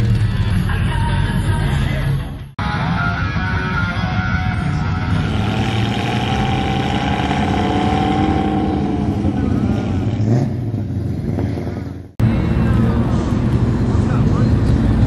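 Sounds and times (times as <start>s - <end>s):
car engines driving past: 4.5s - 15.0s.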